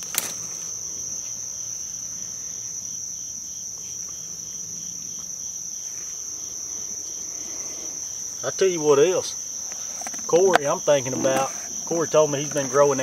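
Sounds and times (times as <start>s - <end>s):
high-pitched insect drone: 0.0s - 13.0s
pulsing insect call: 0.0s - 13.0s.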